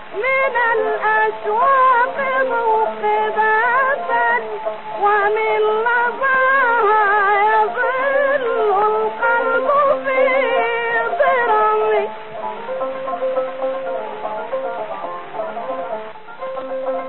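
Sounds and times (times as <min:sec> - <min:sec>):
woman singing melismatic melody: 0:00.0 - 0:17.0.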